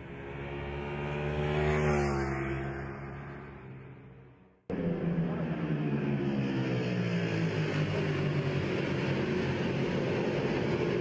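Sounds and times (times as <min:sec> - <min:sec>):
racing motorcycle engine: 0:00.0 - 0:11.0.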